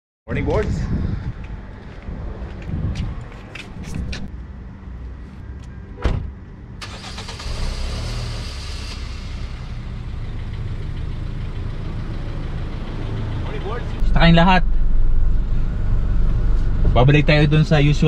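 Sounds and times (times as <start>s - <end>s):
car door shutting: 6.0s - 6.4s
car engine starting and idling: 6.2s - 18.0s.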